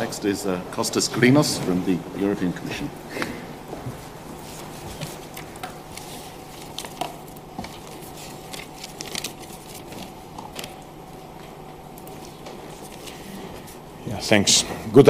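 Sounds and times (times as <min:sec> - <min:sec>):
faint steady hum: 0:00.0 - 0:15.0
papers and objects clicking and rustling: 0:04.4 - 0:13.8.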